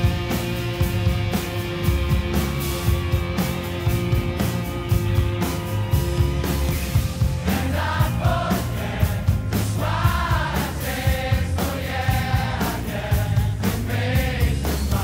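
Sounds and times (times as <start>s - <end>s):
song with bass and drums: 0.0s - 15.0s
sung vocals: 7.4s - 15.0s.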